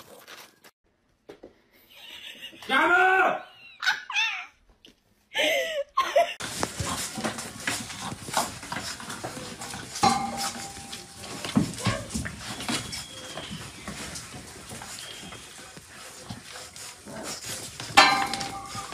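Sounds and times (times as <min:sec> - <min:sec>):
puppy noises: 0:06.4 - 0:18.9
scuffling and clicking: 0:06.4 - 0:18.9.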